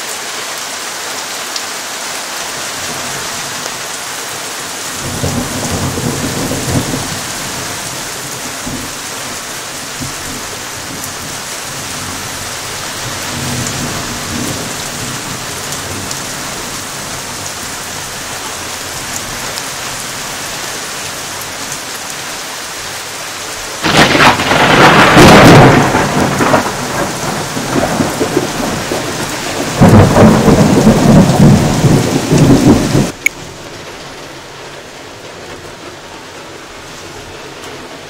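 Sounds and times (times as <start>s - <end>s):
steady rain falling: 0.0s - 38.0s
thunder clap rumbling: 5.0s - 9.0s, 23.8s - 33.2s.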